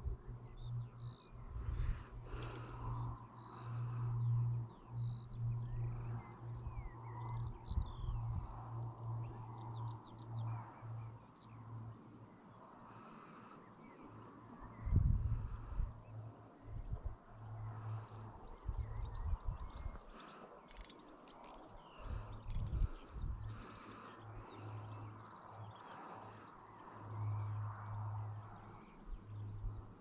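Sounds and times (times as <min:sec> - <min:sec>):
low hum: 0:00.0 - 0:09.4
small birds chirping: 0:00.0 - 0:30.0.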